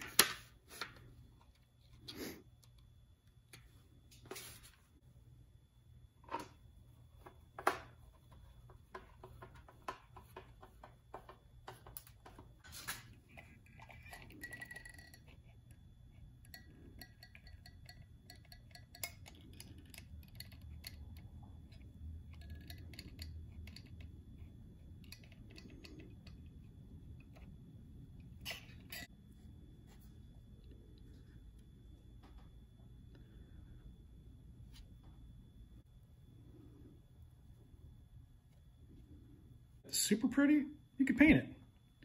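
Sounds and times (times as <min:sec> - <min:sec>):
faint low hum: 0:00.1 - 0:42.0.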